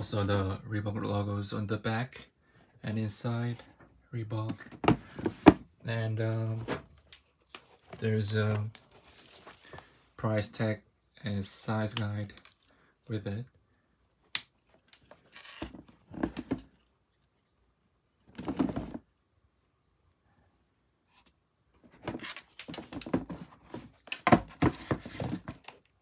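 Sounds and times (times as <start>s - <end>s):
shoes rustling on cardboard box: 21.9s - 25.6s.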